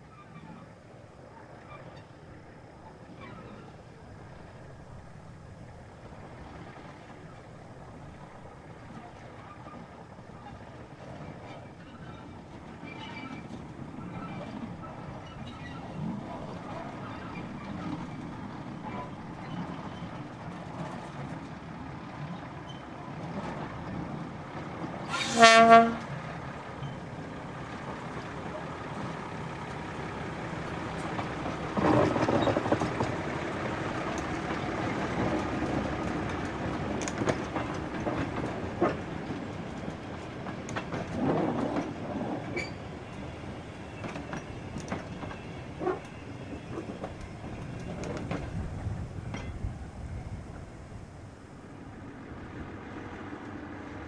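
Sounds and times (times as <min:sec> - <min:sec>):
train wheels clicking over track: 0:01.5 - 0:54.0
railcar horn blast: 0:25.0 - 0:26.3.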